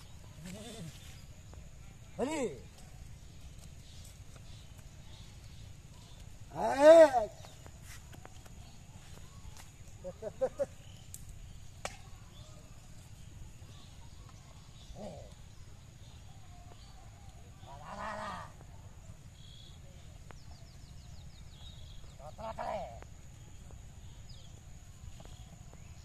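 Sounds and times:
faint bird chirps: 0:00.0 - 0:26.0.

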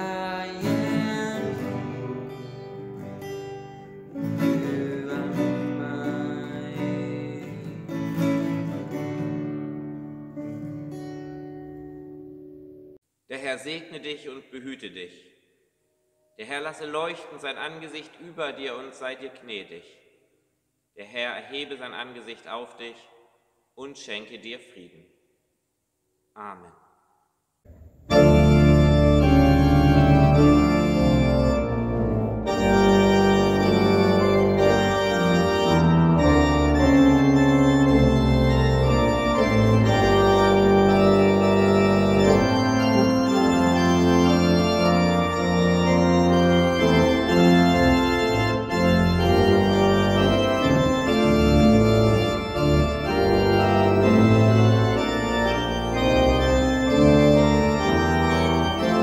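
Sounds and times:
church pipe organ chords: 0:00.0 - 0:09.2, 0:27.7 - 0:59.0.

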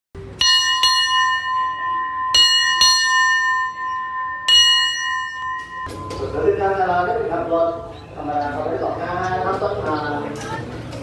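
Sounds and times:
small bell ringing: 0:00.4 - 0:06.5.

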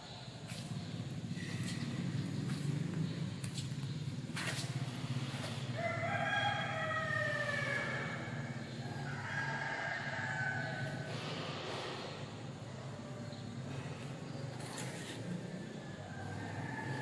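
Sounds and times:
steady low hum: 0:00.0 - 0:17.0
rooster crowing: 0:05.7 - 0:11.2, 0:15.6 - 0:17.0.

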